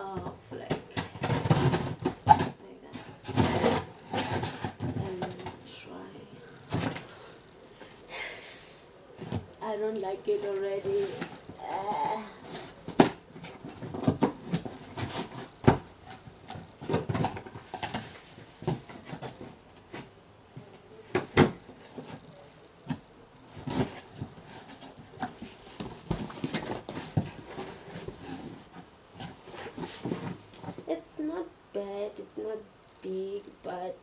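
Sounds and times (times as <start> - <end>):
cardboard rustling and scraping: 0.1 - 6.1, 10.3 - 31.3.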